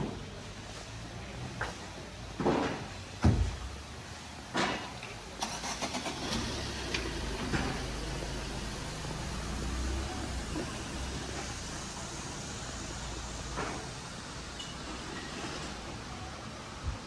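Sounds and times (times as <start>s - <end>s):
car engine idling: 5.0s - 14.6s.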